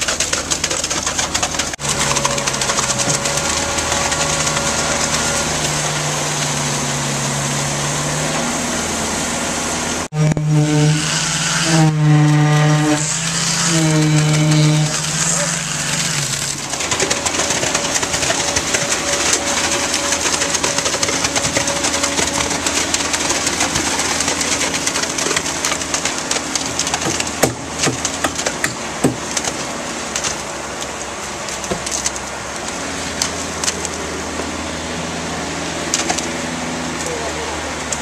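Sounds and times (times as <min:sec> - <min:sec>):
pump truck engine running: 0:00.0 - 0:38.0
knocks and clanks: 0:16.0 - 0:29.7.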